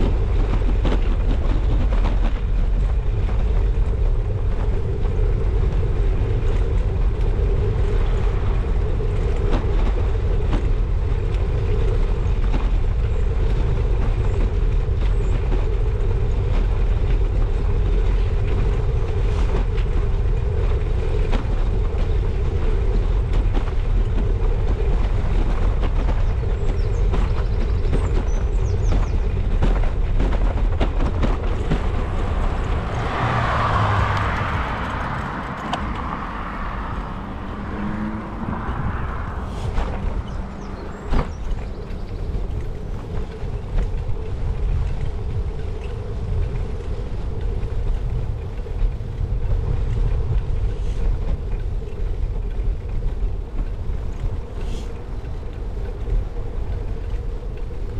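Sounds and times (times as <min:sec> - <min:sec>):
tyres rumbling on rough tarmac: 0:00.0 - 0:57.9
wind buffeting microphone: 0:00.0 - 0:57.9
bicycle knocks and rattles: 0:39.8 - 0:44.9.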